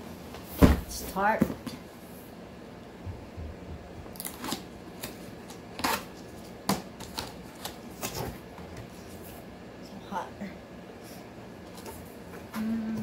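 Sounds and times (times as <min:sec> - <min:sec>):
packing tape ripping: 0:04.2 - 0:08.3.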